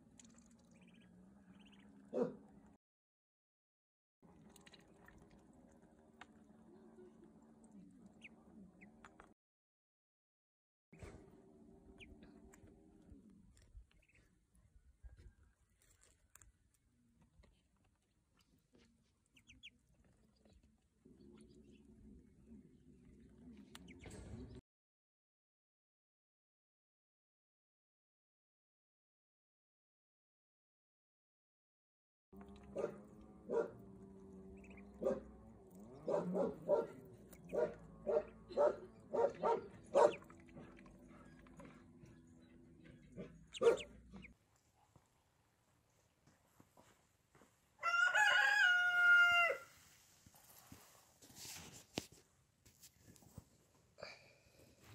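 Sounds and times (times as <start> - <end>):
duckling peeping: 0.2 - 2.0, 8.0 - 9.2, 11.9 - 12.6, 13.8 - 14.3, 19.2 - 20.1, 23.7 - 24.0, 34.5 - 35.0, 35.7 - 44.4
water sloshing and splashing: 4.3 - 6.4.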